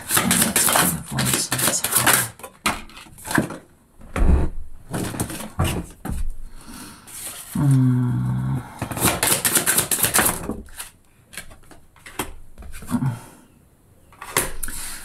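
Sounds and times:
cards being shuffled: 0.0s - 2.5s, 8.9s - 12.8s
cards tapped and laid down: 0.1s - 3.6s, 8.8s - 10.6s
person humming: 0.7s - 2.3s, 7.6s - 8.8s.

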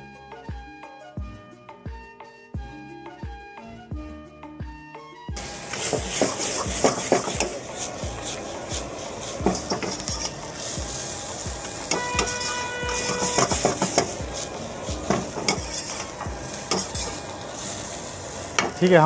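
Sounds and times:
metal ladle scraping a wok: 5.4s - 18.8s
vegetables sizzling in a wok: 5.4s - 19.0s.

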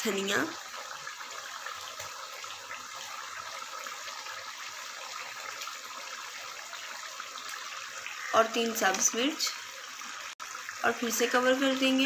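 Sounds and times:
curry bubbling in pan: 0.0s - 12.0s.

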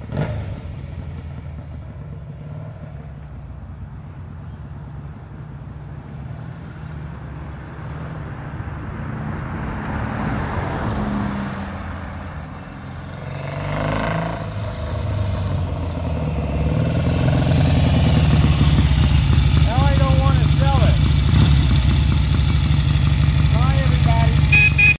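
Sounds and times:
motorcycle engine approaching: 0.0s - 3.6s, 12.5s - 24.9s
van driving past: 8.9s - 24.7s.

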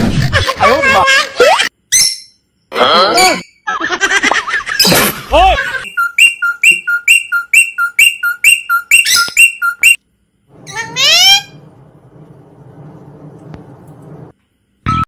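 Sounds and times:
faint low hum: 10.0s - 14.8s.

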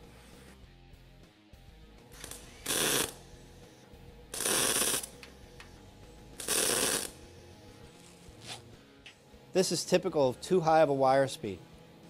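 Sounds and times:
welder arc bursts: 2.1s - 3.7s, 4.3s - 5.8s, 6.4s - 7.5s.

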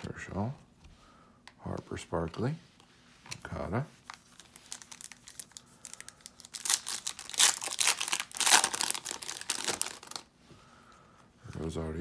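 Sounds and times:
foil wrapper crinkling and tearing: 4.1s - 10.3s.

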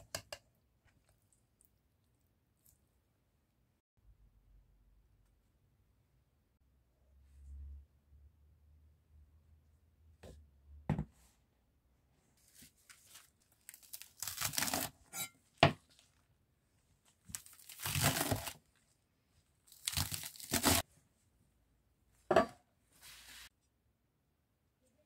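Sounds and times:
knock on wooden cutting board: 10.9s - 11.1s
knife crunching through lettuce: 13.6s - 15.0s, 17.3s - 18.6s, 19.7s - 20.8s.

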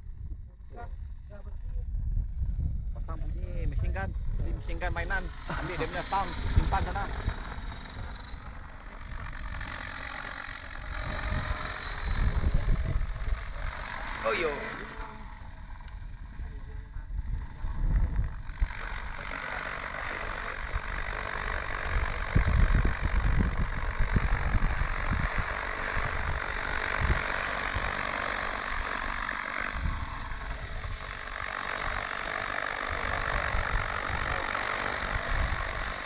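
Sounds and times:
gusts of low rumble: 0.0s - 5.2s
rc helicopter engine and rotors: 0.0s - 36.0s
thin high tone: 14.2s - 15.6s.

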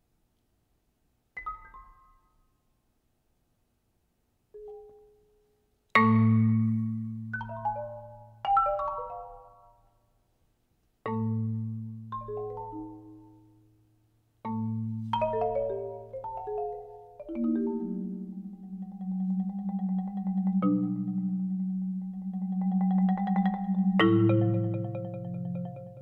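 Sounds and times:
marimba notes: 6.0s - 9.6s, 11.1s - 13.6s, 14.4s - 26.0s
marimba rolled low notes: 14.5s - 26.0s.

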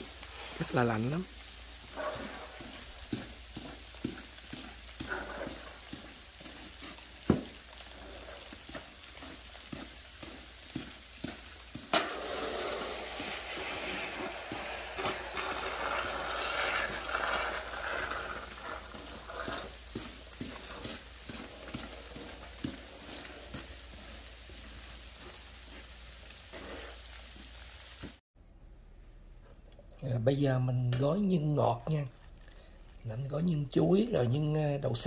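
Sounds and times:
falling sleet hissing and ticking: 0.0s - 28.2s
snow shovel scraping concrete: 0.0s - 28.2s
shovel striking concrete: 11.8s - 23.7s.

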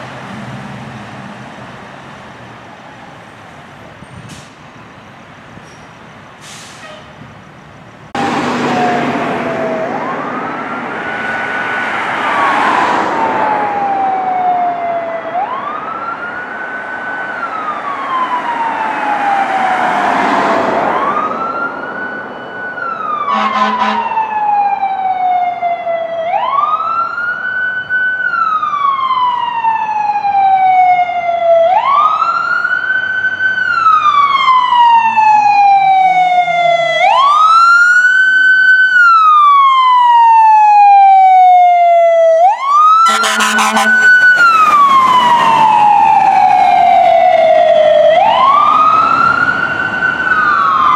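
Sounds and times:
siren wailing: 8.2s - 50.9s
horn blast: 23.3s - 24.1s, 43.0s - 44.6s.

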